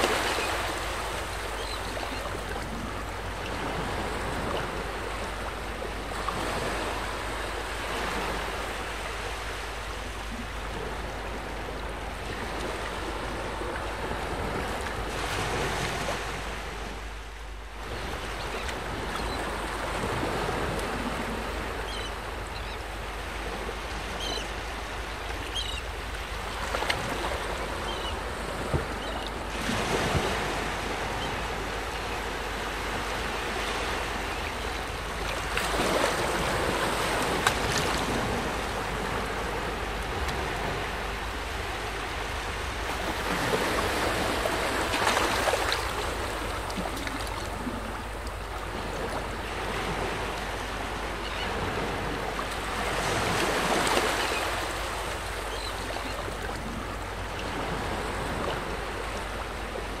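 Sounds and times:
small waves washing onto shore: 0.0s - 60.0s.

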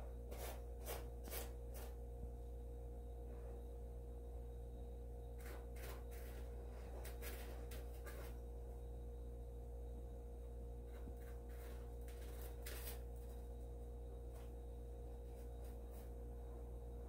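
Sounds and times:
steady low hum: 0.0s - 17.0s
kitten paws scratching litter: 0.3s - 2.0s, 5.3s - 8.5s, 10.9s - 14.6s.

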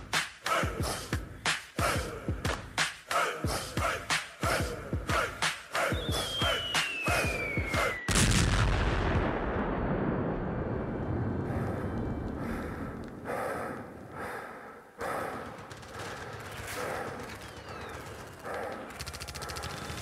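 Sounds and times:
falling whistle: 5.8s - 8.1s
big explosion: 8.1s - 13.3s.

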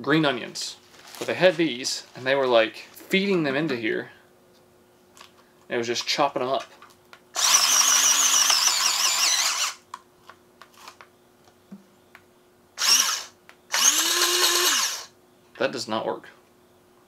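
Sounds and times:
electric food chopper motor: 7.4s - 9.8s, 12.8s - 15.1s.

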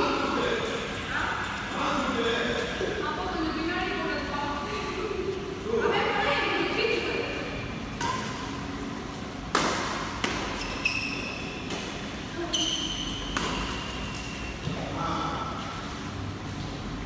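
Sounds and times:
racket hitting shuttlecock: 8.0s - 8.6s, 9.4s - 10.8s, 11.7s - 12.1s, 12.7s - 14.4s
shoes squeaking on court: 10.4s - 14.7s.

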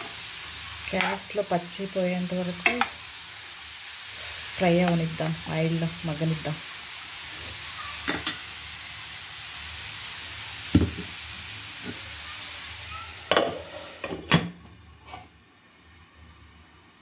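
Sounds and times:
vegetables sizzling in hot oil: 0.0s - 17.0s
knocks against a pan: 10.7s - 11.1s.

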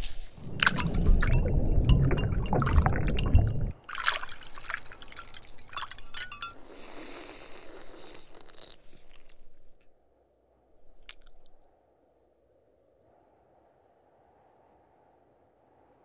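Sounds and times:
liquid splashing and gurgling: 0.4s - 6.6s
ice clinking against glass: 0.4s - 7.3s.

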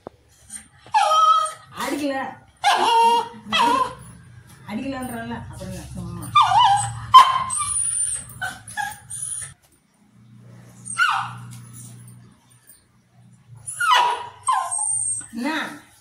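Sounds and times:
dog yelping and whining: 0.4s - 5.3s, 6.1s - 9.6s, 10.7s - 12.8s, 13.5s - 15.6s.

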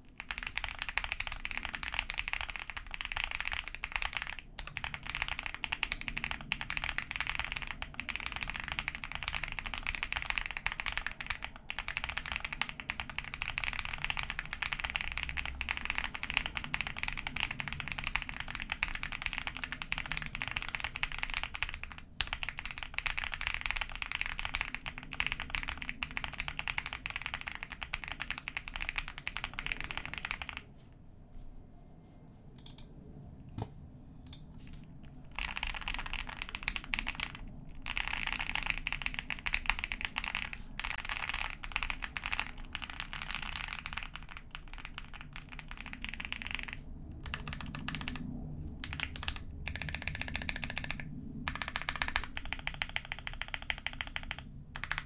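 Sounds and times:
mechanical keyboard key clacks: 48.8s - 55.0s.

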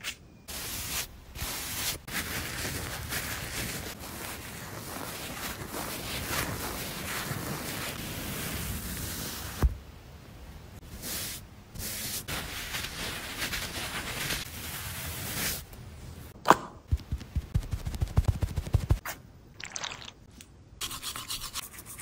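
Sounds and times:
pad rubbing dog's fur: 0.8s - 9.6s.

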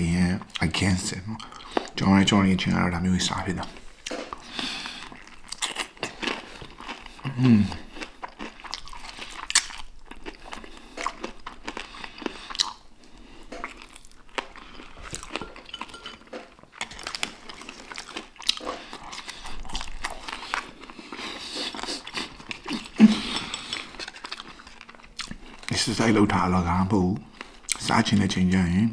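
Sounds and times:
crunchy chewing: 3.6s - 25.8s.

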